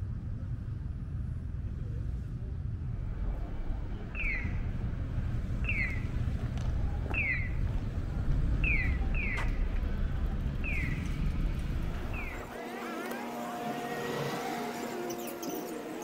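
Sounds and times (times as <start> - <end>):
street noise rumble: 0.0 - 16.0
crossing signal chirping: 4.0 - 4.9, 5.5 - 6.3, 7.1 - 7.7, 8.6 - 9.7, 10.6 - 12.6.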